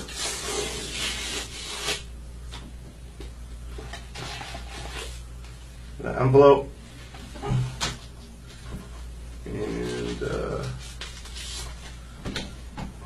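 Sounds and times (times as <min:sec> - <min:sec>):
paper ripping and rustling: 0:00.0 - 0:02.0, 0:09.7 - 0:11.9.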